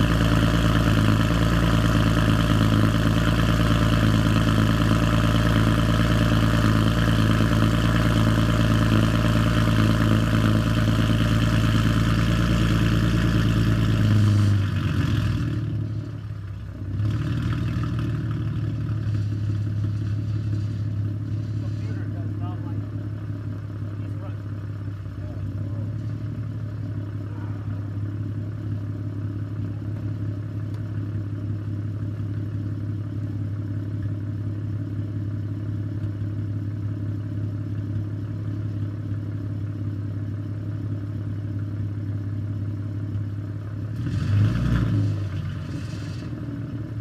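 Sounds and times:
engine revving: 0.0s - 16.0s, 16.8s - 20.8s, 43.8s - 47.0s
car engine idling: 0.0s - 47.0s.

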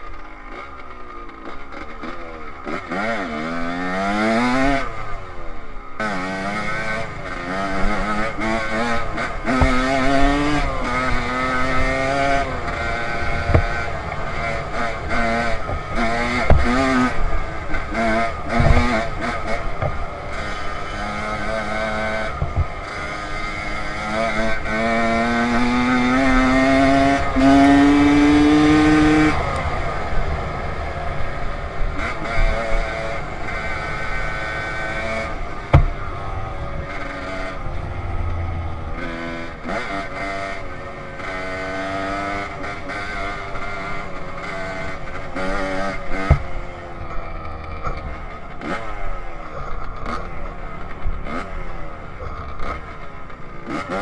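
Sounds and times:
dirt bike engine revving: 0.0s - 54.0s
sharp knocks: 35.6s - 36.0s, 46.2s - 46.5s.

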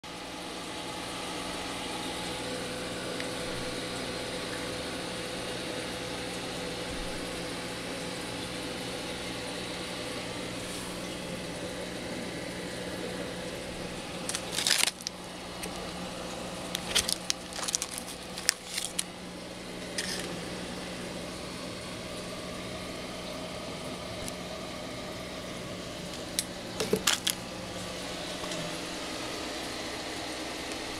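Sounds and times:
mechanical hum and hiss: 0.0s - 30.9s
constant pitched drone: 0.1s - 30.9s
sharp crackling and clicking: 14.2s - 16.0s, 16.7s - 19.2s.

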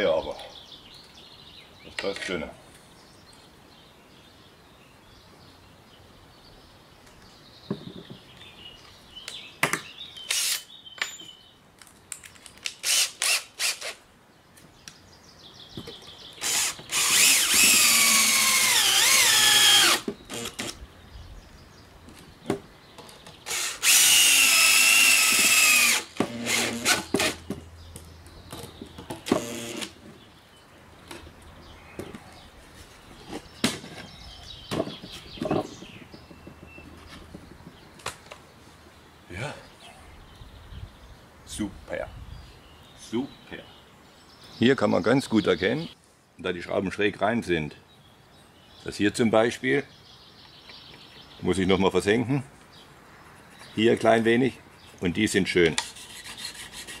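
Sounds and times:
cordless drill driving screws: 10.3s - 10.7s, 12.8s - 14.0s, 16.4s - 20.8s, 23.4s - 27.4s, 29.3s - 30.0s.

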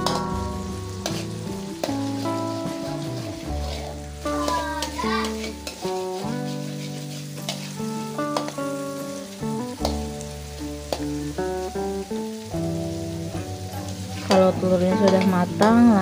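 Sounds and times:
background music with bass: 0.0s - 16.0s
food sizzling in a wok: 0.0s - 16.0s
spatula scraping a pan: 1.0s - 8.7s.

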